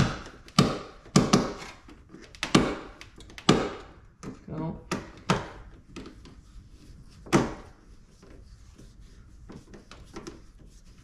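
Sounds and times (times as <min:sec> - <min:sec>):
sharp knocks: 0:00.0 - 0:01.7, 0:02.4 - 0:04.0.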